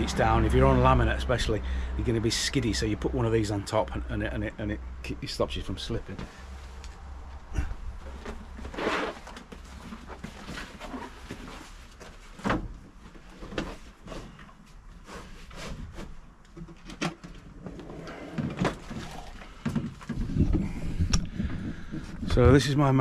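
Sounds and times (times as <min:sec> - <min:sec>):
gear knocking and clunking in a van: 0:18.4 - 0:23.0.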